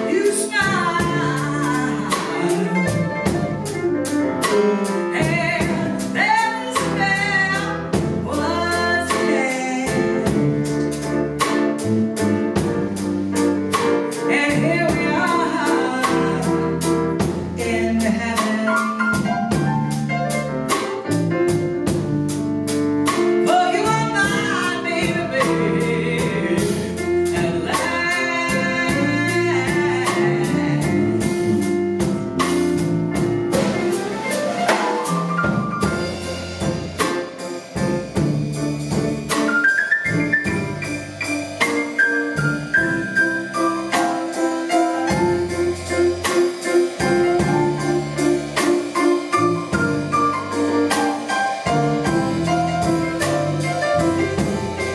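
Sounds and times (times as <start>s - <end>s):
woman singing: 0.0s - 3.4s, 5.1s - 10.6s, 14.3s - 16.8s, 17.6s - 19.6s, 23.4s - 31.4s
drums and cymbals: 0.0s - 54.9s
grand piano: 0.0s - 54.9s
electric bass guitar: 28.6s - 34.1s, 35.4s - 39.4s, 45.1s - 54.9s.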